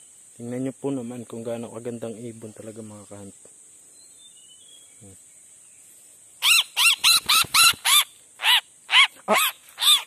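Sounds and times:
bird squawking harshly: 6.4s - 10.0s.

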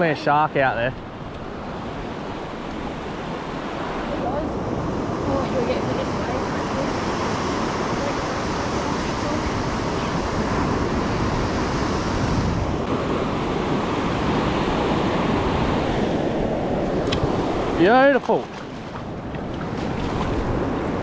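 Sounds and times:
waves breaking on beach: 0.0s - 21.0s
wind on microphone: 1.0s - 21.0s.

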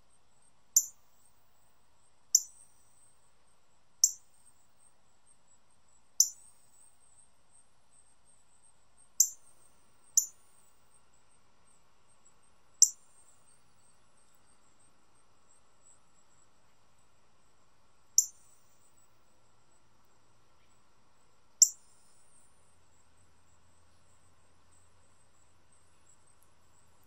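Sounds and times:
cardinal chip calls: 2.3s - 2.6s.

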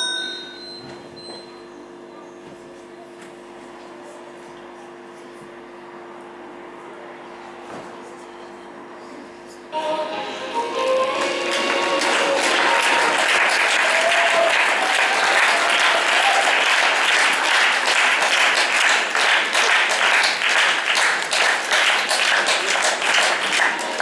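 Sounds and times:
audience applauding: 10.8s - 24.0s.

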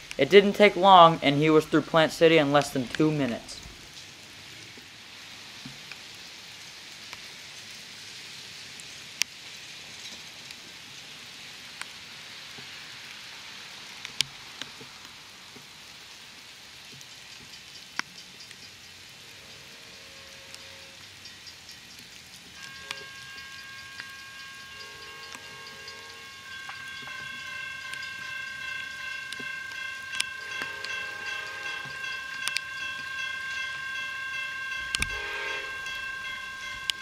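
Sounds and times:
outdoor hiss: 0.0s - 37.0s
sharp ticks: 16.9s - 19.1s, 20.5s - 35.2s
faint held tones: 22.6s - 37.0s.

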